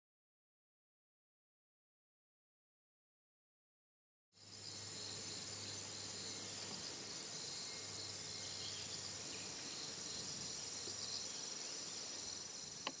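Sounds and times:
insects trilling: 4.4 - 13.0.

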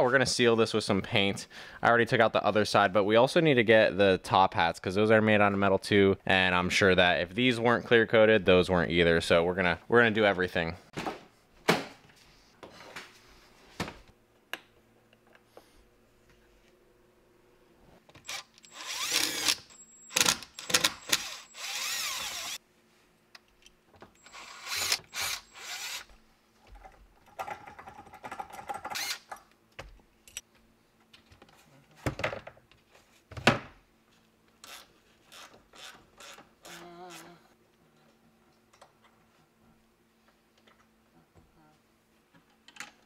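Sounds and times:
small power tool whirring: 18.2 - 22.6, 24.2 - 26.1, 34.6 - 37.4.

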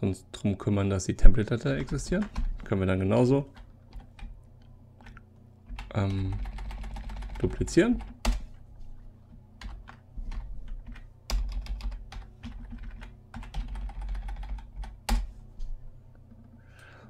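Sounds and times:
steady low hum: 0.0 - 17.0
computer keyboard typing: 5.0 - 8.5, 9.6 - 15.3.

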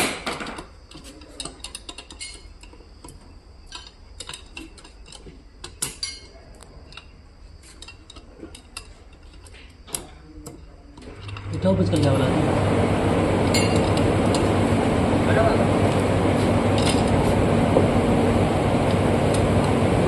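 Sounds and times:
metal tools clinking: 0.5 - 12.2
low steady hum: 0.9 - 20.0.

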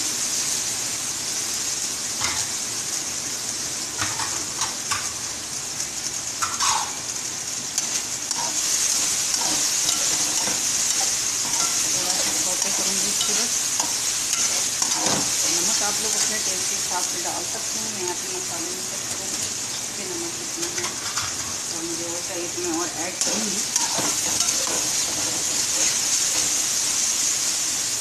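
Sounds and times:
food sizzling in a pan: 0.0 - 28.0
metal spatula scraping a pan: 7.8 - 16.5, 20.6 - 21.7, 23.2 - 26.6.

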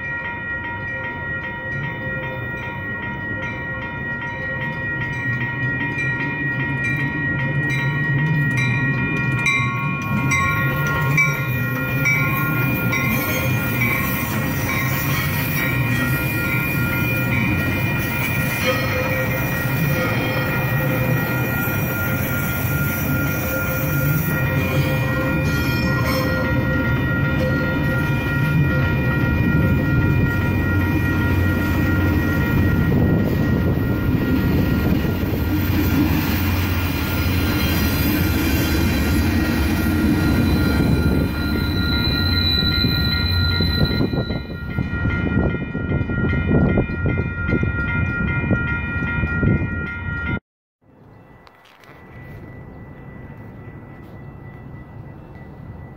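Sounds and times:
crossing bell ringing: 0.0 - 55.9
train passing with rumbling wheels: 0.0 - 55.9.

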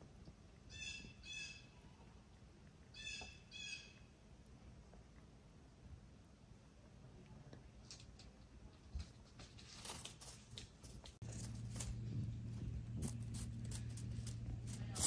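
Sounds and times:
chipmunk scampering on pine needles: 7.8 - 15.0
steady low hum: 10.2 - 15.0.

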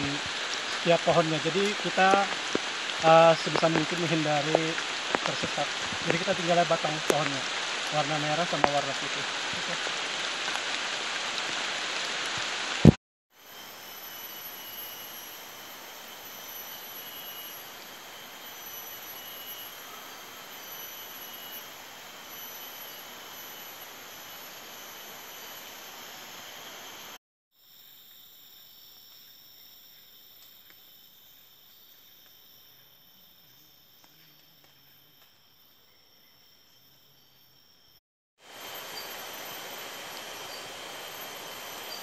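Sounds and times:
rain hissing: 0.0 - 27.2, 38.4 - 42.0
insect chorus: 0.0 - 42.0.

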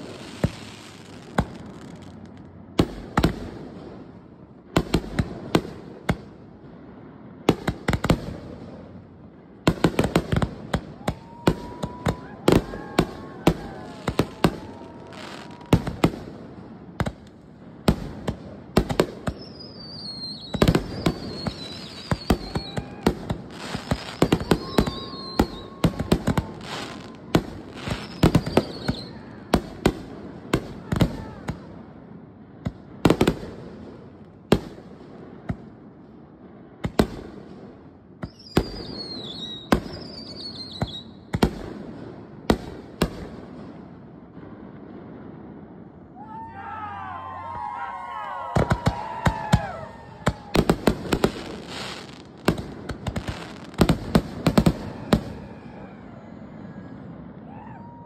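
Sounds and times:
fireworks bursting with sharp bangs: 0.0 - 58.0
firework whistles falling in pitch: 10.9 - 16.0, 19.3 - 29.4, 38.2 - 41.3, 46.1 - 52.2, 54.5 - 58.0.

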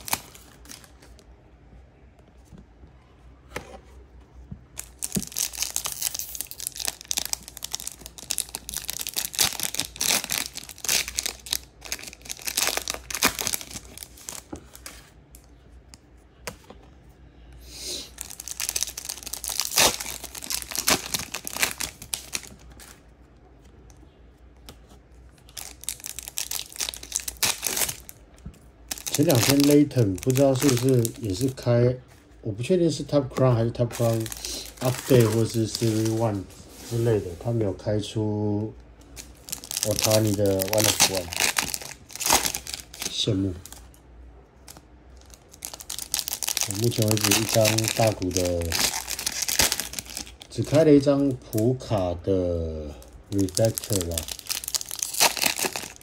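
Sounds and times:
card pack wrappers crinkling: 0.0 - 1.2, 4.7 - 15.3, 18.0 - 23.1, 25.3 - 31.7, 33.3 - 37.1, 39.0 - 44.0, 44.6 - 52.0, 53.0 - 56.0.

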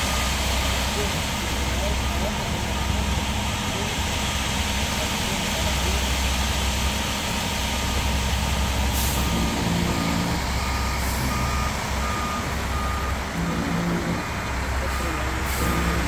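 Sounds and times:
diesel truck engine running: 0.0 - 16.0
back-up alarm beeping: 9.2 - 14.2, 14.8 - 16.0.

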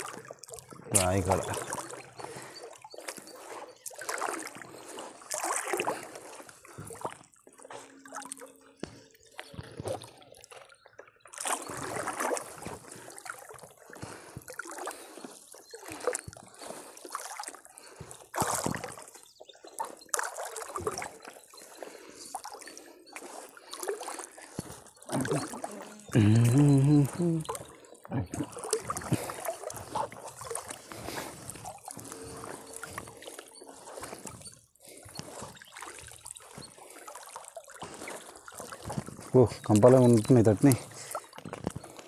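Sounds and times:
water trickling and splashing: 0.0 - 42.0
net hauled out of water: 11.3 - 13.6.

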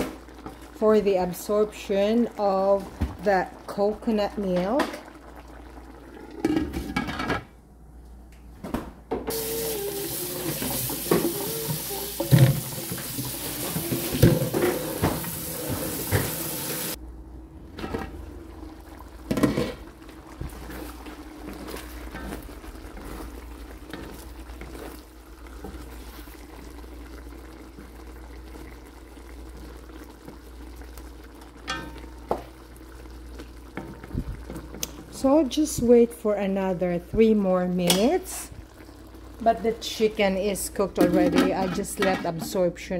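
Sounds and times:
pot simmering: 0.0 - 7.3, 9.3 - 17.0, 17.6 - 42.8
kitchen tap running: 9.3 - 17.0.

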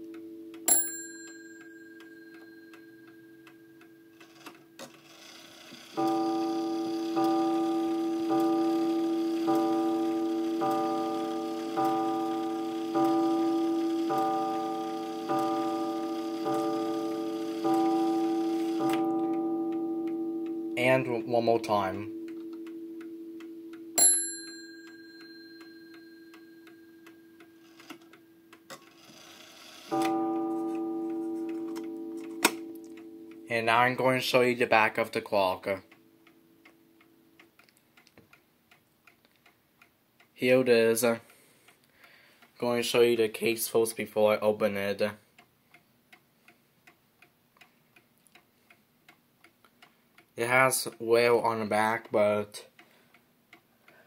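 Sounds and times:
clock bell ping: 0.0 - 4.4, 5.9 - 27.4, 29.9 - 34.4
clock ticking: 0.0 - 54.0
clock gong striking: 6.0 - 22.3, 29.9 - 33.8.

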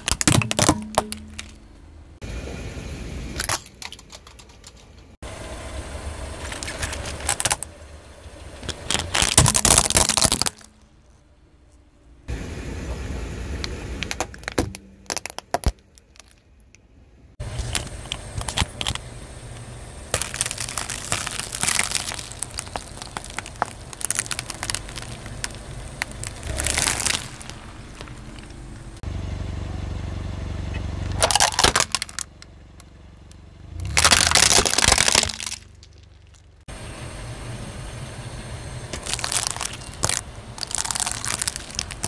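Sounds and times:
eggs cracking: 0.0 - 1.6, 8.6 - 10.8, 14.0 - 16.4, 17.5 - 28.6, 31.2 - 32.4, 33.9 - 36.4, 38.9 - 42.0
plastic controller crunching under tyre: 0.0 - 1.6, 6.4 - 7.7, 8.6 - 10.9, 13.6 - 16.5, 17.4 - 28.8, 31.1 - 32.5, 33.8 - 36.5, 38.9 - 42.0.

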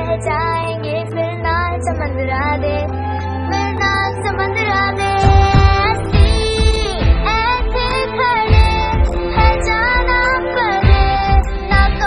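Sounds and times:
drum beat: 5.2 - 12.0.

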